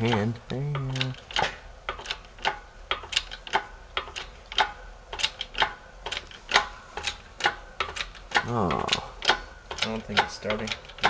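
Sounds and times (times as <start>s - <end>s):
rapid metallic clicking of press: 0.0s - 11.0s.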